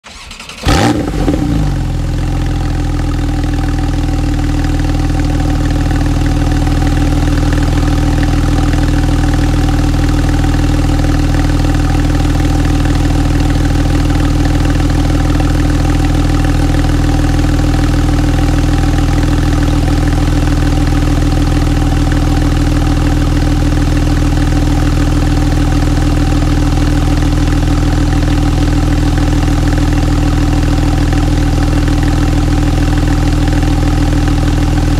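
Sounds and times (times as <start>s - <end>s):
car engine starting and idling: 0.0s - 34.9s.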